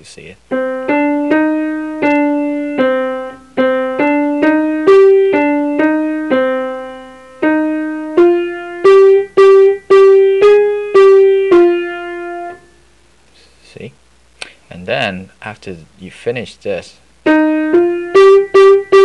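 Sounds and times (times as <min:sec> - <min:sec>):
slow piano melody: 0:00.5 - 0:12.9, 0:17.2 - 0:19.0.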